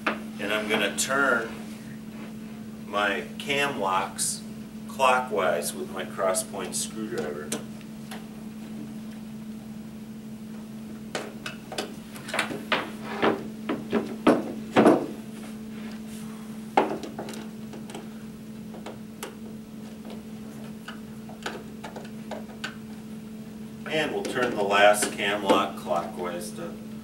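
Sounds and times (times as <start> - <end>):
steady low hum: 0.0 - 27.0
knocks of wooden furniture panels: 11.2 - 15.2, 16.8 - 17.4.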